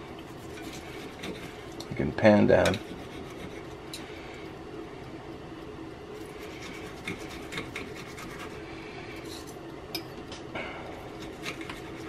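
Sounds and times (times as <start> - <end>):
steady low hum: 0.0 - 12.0
cutlery scraping a plate: 0.4 - 1.9, 2.6 - 4.0, 6.3 - 8.6, 11.1 - 12.0.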